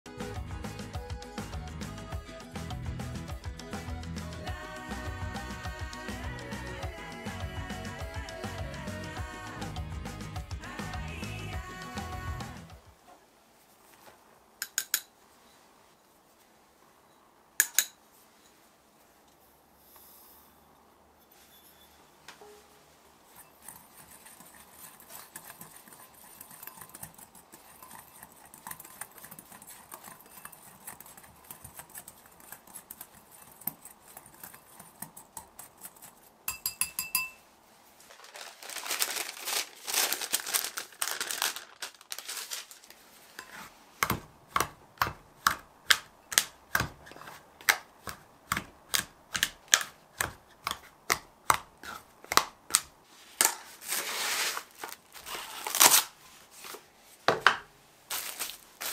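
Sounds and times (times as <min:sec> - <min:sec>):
knife cutting on cutting board: 0:43.4 - 0:52.8.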